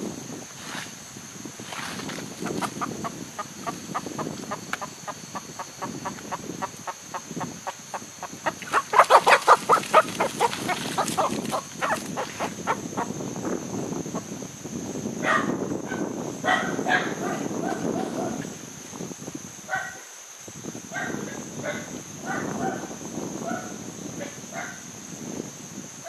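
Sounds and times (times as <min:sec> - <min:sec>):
chicken clucking: 0:02.4 - 0:12.8.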